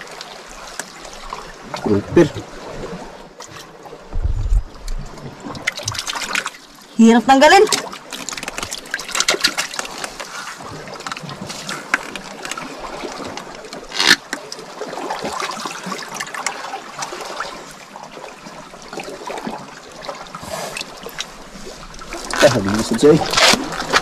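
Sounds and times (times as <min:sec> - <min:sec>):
water lapping and splashing: 0:00.0 - 0:24.0
small clicks and crackles: 0:08.1 - 0:10.3, 0:22.2 - 0:24.0.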